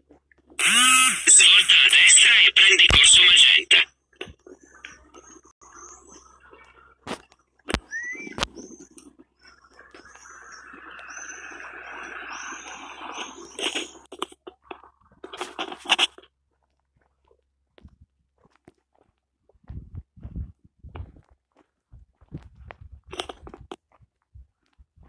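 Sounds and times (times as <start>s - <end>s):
small birds chirping: 3.9s - 14.1s.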